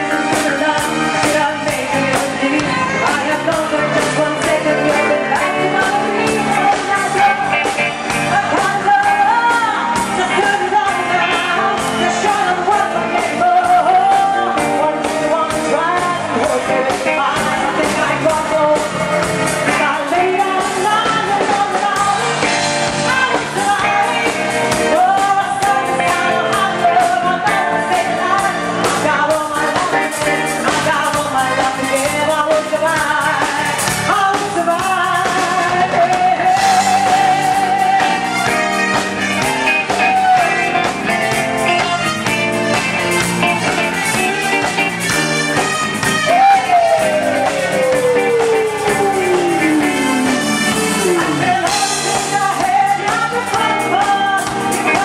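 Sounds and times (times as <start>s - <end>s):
live band playing: 0.0s - 55.0s
person singing long notes: 46.0s - 55.0s.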